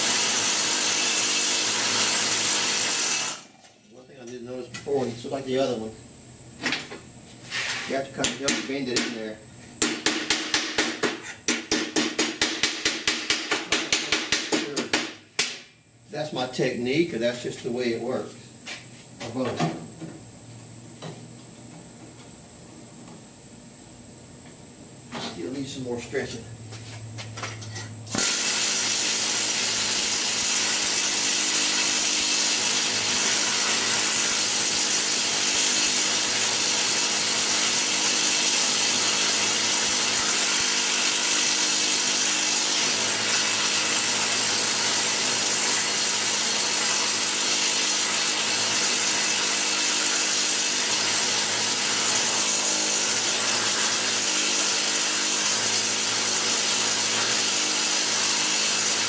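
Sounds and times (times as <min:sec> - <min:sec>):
pneumatic hammer on sheet steel: 0:07.5 - 0:15.6, 0:27.6 - 0:59.0.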